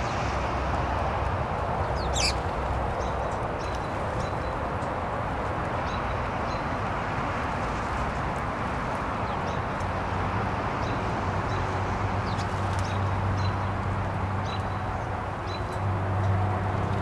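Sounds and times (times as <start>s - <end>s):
steady background noise: 0.0s - 17.0s
songbirds chirping: 1.7s - 10.0s, 10.7s - 17.0s.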